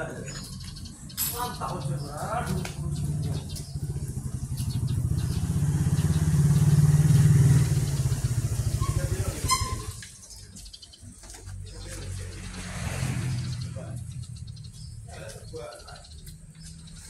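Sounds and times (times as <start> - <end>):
motorcycle engine passing: 1.4 - 15.3.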